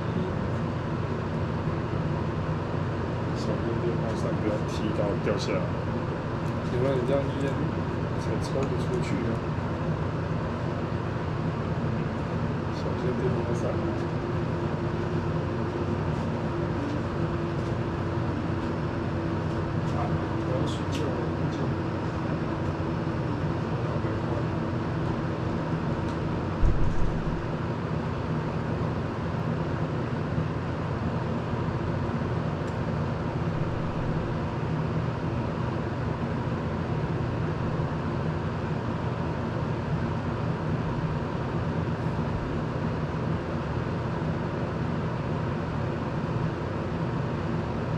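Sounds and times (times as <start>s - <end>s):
fan rushing air: 0.0s - 47.9s
low thump: 26.6s - 27.4s.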